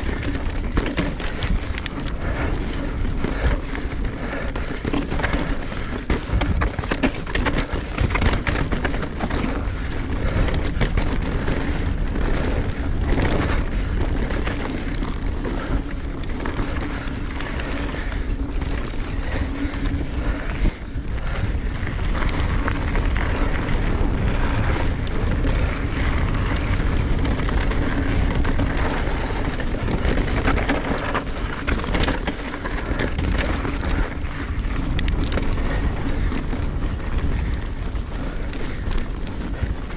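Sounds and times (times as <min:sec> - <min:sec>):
bike and chain rattling: 0:00.0 - 0:39.9
tyre roar over dirt and rock: 0:00.0 - 0:39.9
wind buffeting microphone: 0:00.0 - 0:39.9.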